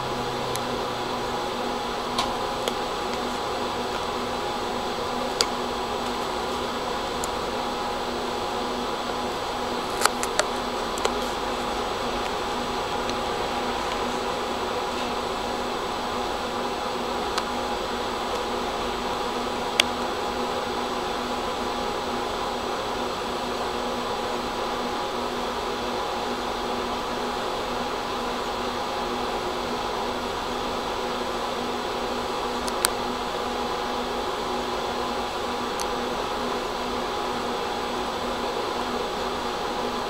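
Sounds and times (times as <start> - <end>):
tram equipment humming: 0.0 - 39.9.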